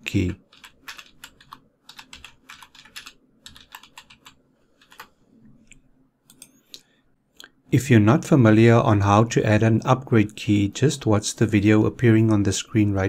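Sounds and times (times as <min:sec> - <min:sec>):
faint keyboard typing: 0:00.0 - 0:06.9.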